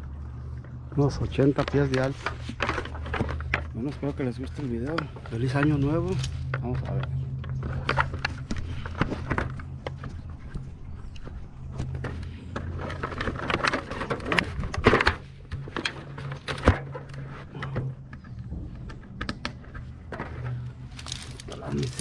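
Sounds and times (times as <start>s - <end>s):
steady low hum: 0.0s - 22.0s
straps and rope rustling: 20.4s - 22.0s.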